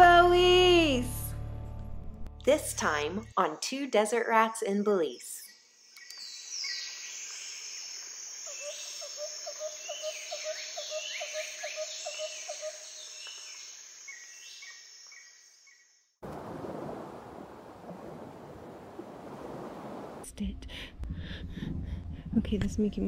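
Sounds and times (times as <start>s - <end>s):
high insect drone: 6.0s - 15.8s.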